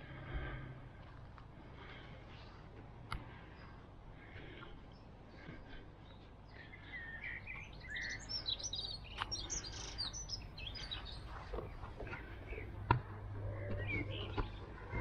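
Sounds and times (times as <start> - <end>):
songbirds chirping and warbling: 0.0 - 15.0.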